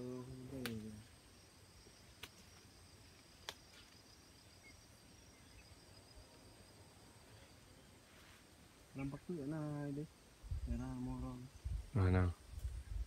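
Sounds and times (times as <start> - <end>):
high insect trilling: 0.0 - 7.9.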